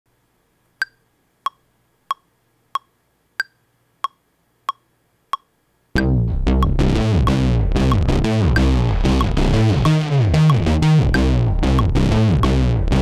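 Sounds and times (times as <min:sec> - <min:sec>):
metronome clicks: 0:00.8 - 0:12.6
dense synthesizer sound: 0:06.0 - 0:13.0.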